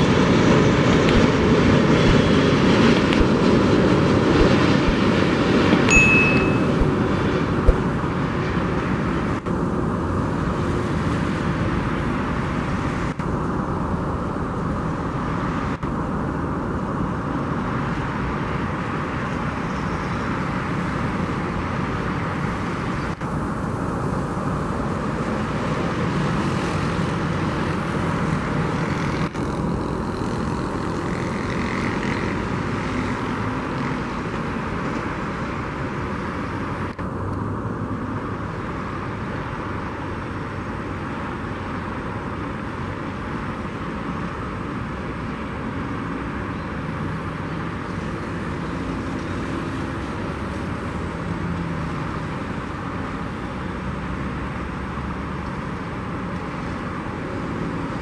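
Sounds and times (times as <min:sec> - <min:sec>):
distant jet engine noise: 0:00.0 - 0:58.0.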